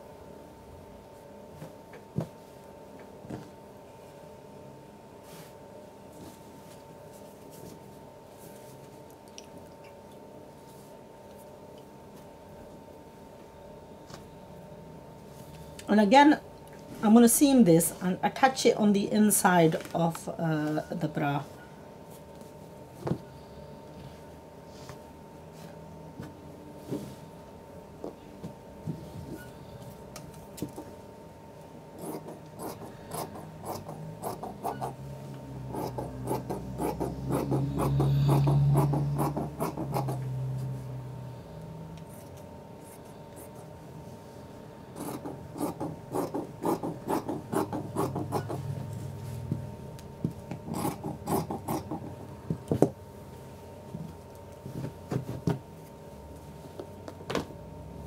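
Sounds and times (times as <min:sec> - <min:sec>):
scissors snipping fabric: 0:50.6 - 0:52.1.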